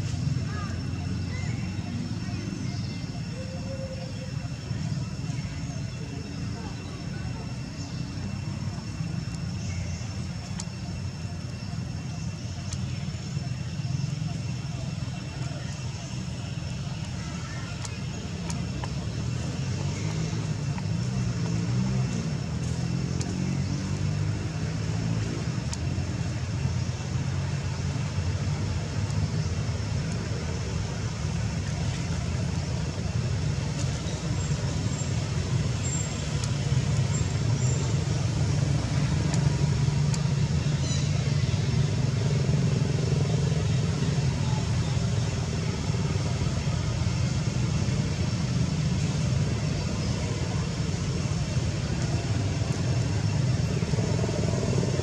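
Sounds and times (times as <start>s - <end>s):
low traffic rumble: 0.0s - 55.0s.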